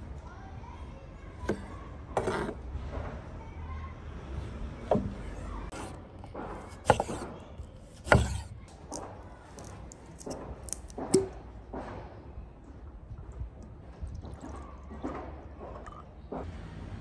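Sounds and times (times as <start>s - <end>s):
knife cutting on wooden board: 2.2s - 2.6s, 5.7s - 9.0s
glass set on wooden table: 8.0s - 9.1s.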